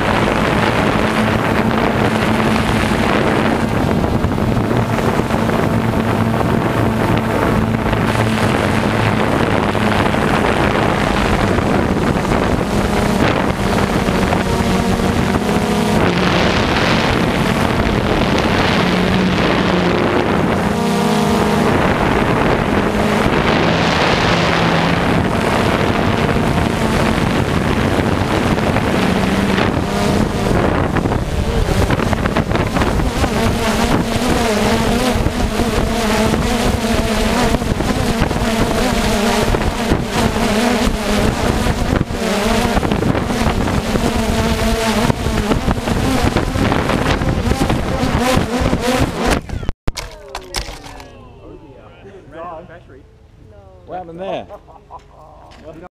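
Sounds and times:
drone crashing to ground: 0.0 - 34.4
wind on microphone: 0.0 - 49.7
drone propellers whirring: 0.0 - 53.5.

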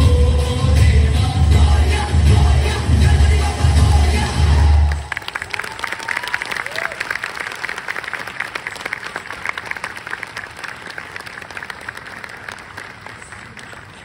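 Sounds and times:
audience applauding: 4.8 - 14.0.

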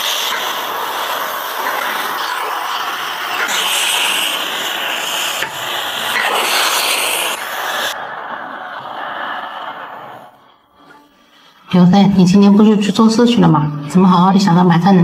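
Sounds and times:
meat sizzling in a wok: 0.0 - 8.0.

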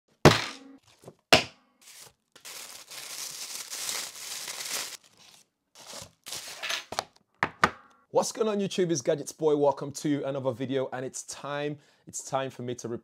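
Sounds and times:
tissue paper crinkling and tearing: 1.8 - 6.6.

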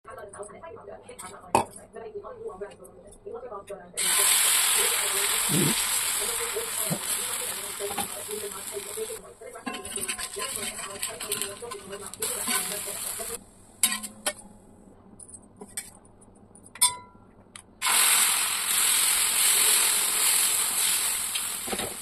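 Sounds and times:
batter sizzling on hot pan: 4.0 - 9.2, 17.8 - 22.0.

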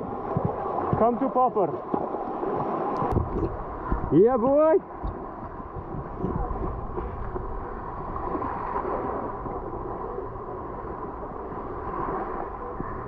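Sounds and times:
wind on the microphone: 0.0 - 1.3, 2.4 - 4.4, 5.0 - 13.0
waves washing over rocks: 0.0 - 9.9.

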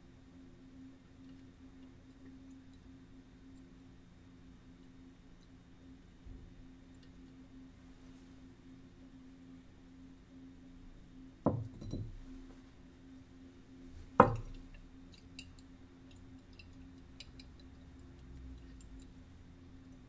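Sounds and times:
glass flask knocking and clinking: 11.5 - 12.2, 14.2 - 14.7.

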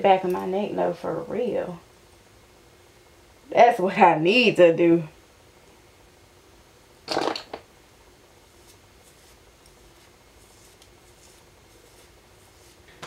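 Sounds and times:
fingers rustling gelled hair: 8.5 - 13.0.

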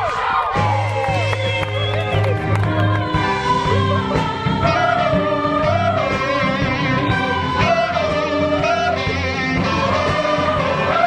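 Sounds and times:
instrumental accompaniment with beat: 0.6 - 11.0
female choir singing: 2.6 - 11.0.

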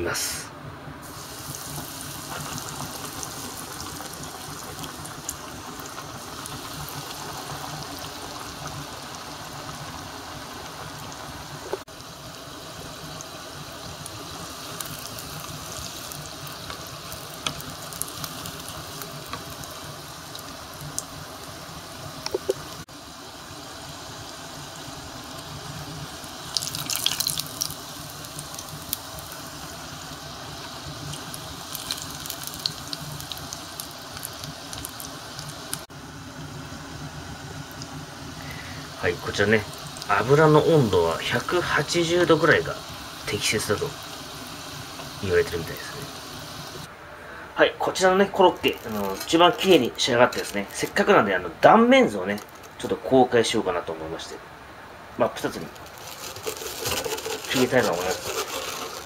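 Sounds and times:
croquettes deep-frying in oil: 1.0 - 46.9, 47.8 - 54.3, 55.1 - 59.0.

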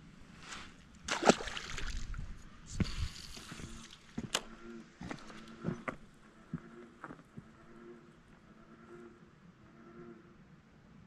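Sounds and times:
water sloshing: 1.0 - 2.4
splash in water: 1.1 - 2.2.

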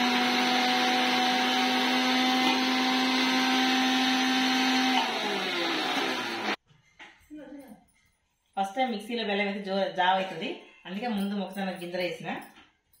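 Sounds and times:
mixer grinder running: 0.0 - 6.6.

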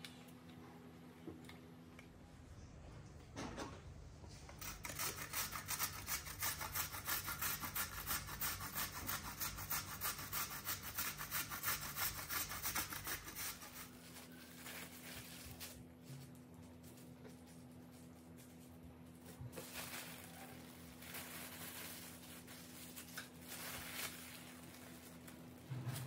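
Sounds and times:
carrot rasping on metal grater: 4.6 - 13.9
plastic film rustling: 13.3 - 26.0.

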